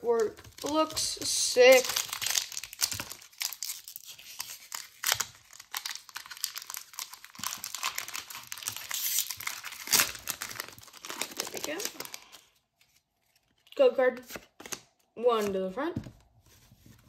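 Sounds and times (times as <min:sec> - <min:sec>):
foil wrapper tearing and crinkling: 0:00.1 - 0:13.7.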